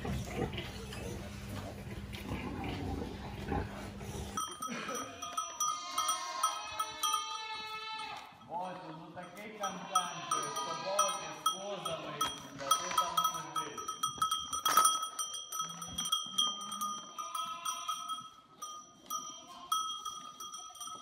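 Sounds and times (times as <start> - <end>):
bell ringing: 4.4 - 7.6, 9.2 - 21.0
goats bleating: 4.4 - 14.8, 15.6 - 18.3, 19.2 - 20.2.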